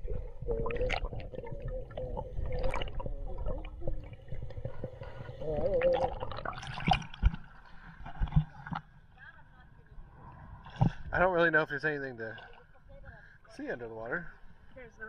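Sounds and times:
muffled underwater gurgling: 0.0 - 7.3
low underwater rumble: 0.0 - 11.2.

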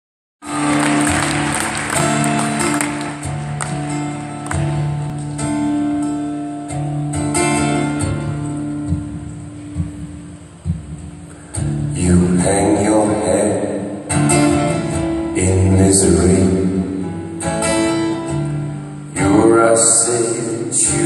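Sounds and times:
live guitar ringing notes: 0.4 - 21.0.

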